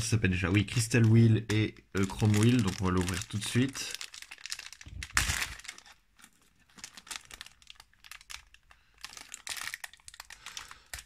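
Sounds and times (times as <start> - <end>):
plastic wrapper crinkling: 0.0 - 11.0.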